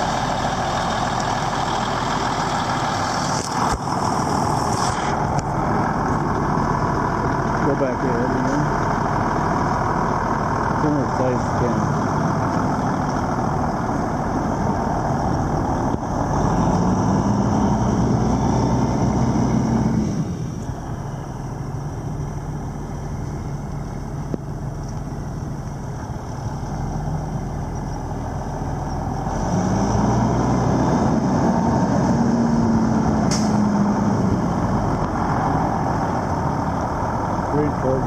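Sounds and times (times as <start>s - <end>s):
truck diesel engine under load: 0.0s - 38.0s
sharp click: 33.3s - 33.6s.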